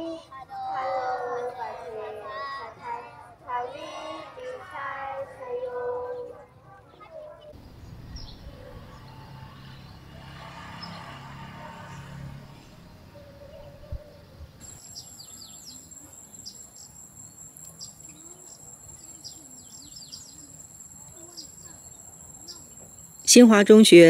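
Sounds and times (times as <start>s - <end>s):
birds chirping: 7.6s - 24.0s
high-pitched insect drone: 14.6s - 23.5s.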